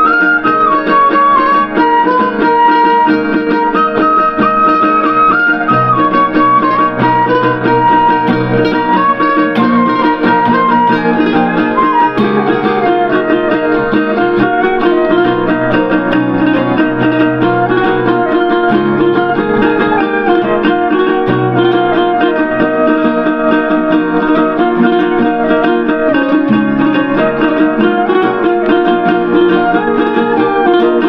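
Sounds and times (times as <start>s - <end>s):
acoustic guitar strumming: 0.0s - 31.0s
bamboo flute melody: 0.0s - 31.0s
keyboard melody: 0.0s - 31.0s
ukulele strumming: 0.0s - 31.0s.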